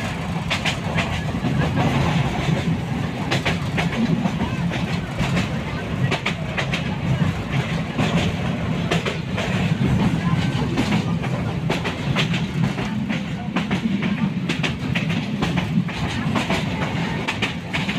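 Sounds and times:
train rumble: 0.0s - 17.9s
wheels clattering on track: 0.0s - 17.9s.

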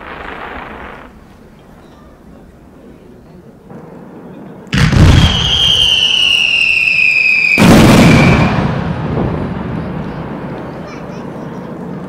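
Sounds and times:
fireworks blasts: 0.0s - 3.0s, 3.6s - 12.0s
firework whistle sliding down: 5.2s - 8.5s.

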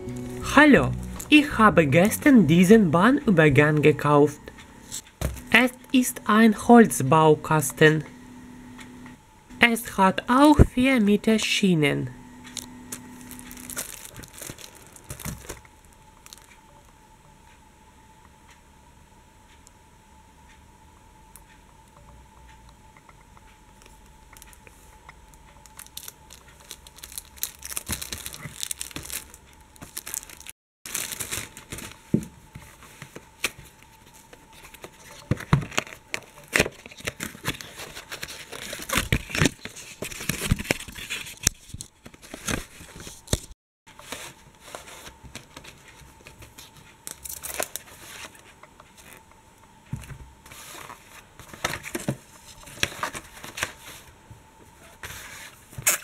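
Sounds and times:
faint steady whine: 0.0s - 55.8s
cardboard and wrapping crinkling: 12.6s - 16.5s, 25.6s - 49.2s.

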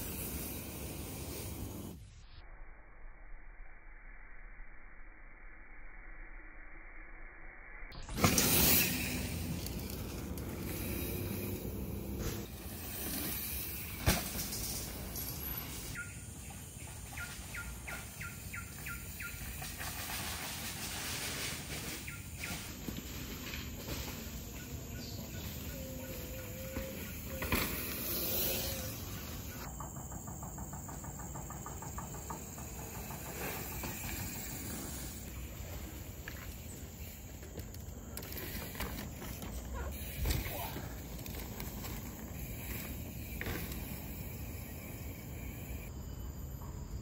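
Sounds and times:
bike tyres rolling over dirt: 0.0s - 2.0s, 8.0s - 45.9s
bike landing thud: 8.1s - 9.4s, 12.0s - 15.1s, 26.8s - 28.6s.

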